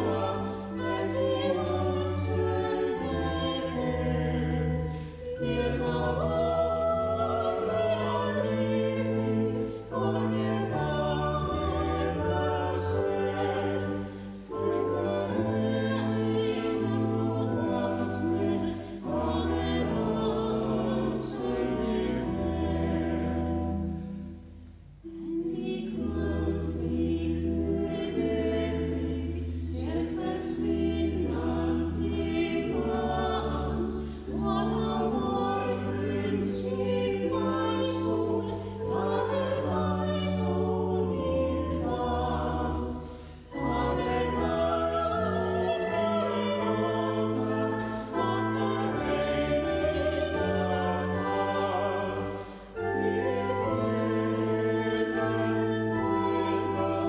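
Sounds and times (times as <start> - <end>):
choir singing a hymn: 0.0 - 57.0.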